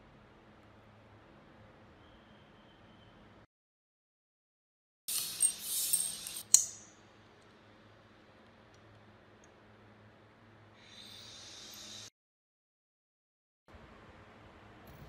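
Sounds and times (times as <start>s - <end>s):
sharp metallic click: 5.1s - 6.9s.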